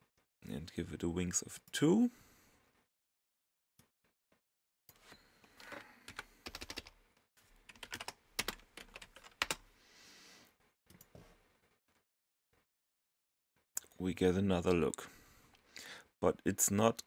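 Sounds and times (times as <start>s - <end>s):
keyboard clicks: 6.1s - 6.9s
typing on computer keyboard: 6.1s - 7.0s, 7.6s - 9.6s.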